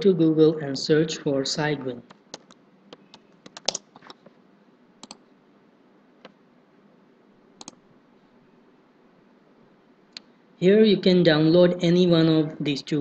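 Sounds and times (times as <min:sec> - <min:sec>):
keyboard typing: 0:02.1 - 0:04.3, 0:05.0 - 0:05.2, 0:07.6 - 0:07.8
mouse clicks: 0:05.0 - 0:05.2, 0:07.6 - 0:07.8.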